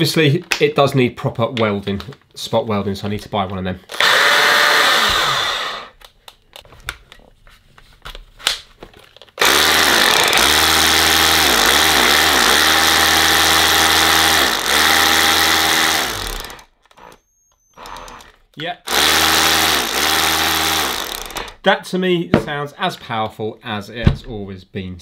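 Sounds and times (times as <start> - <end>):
cordless drill motor running: 3.9 - 6.0, 9.4 - 21.6
drill clicks: 3.9 - 6.6, 9.4 - 21.6.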